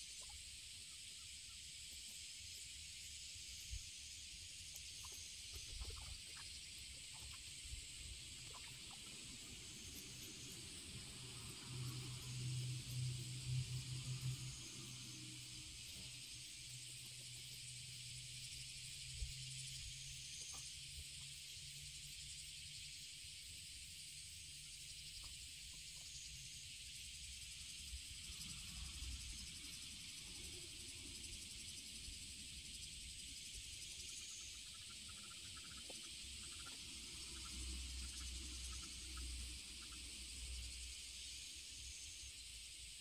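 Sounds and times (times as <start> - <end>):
insects chorus: 0.0 - 43.0
faint ticks: 4.6 - 7.6, 33.8 - 40.1.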